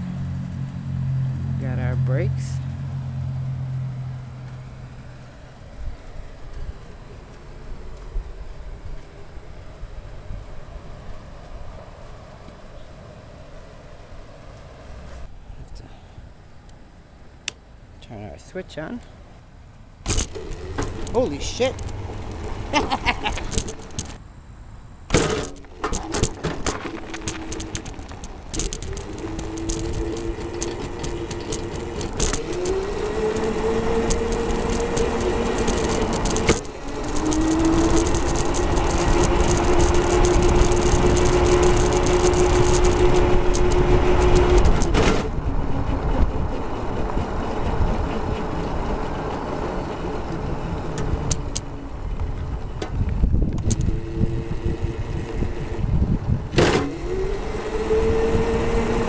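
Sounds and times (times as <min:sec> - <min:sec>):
tyres and wind rumble: 0:00.0 - 0:59.0
electric motor whining: 0:20.1 - 0:24.2, 0:25.2 - 0:59.0.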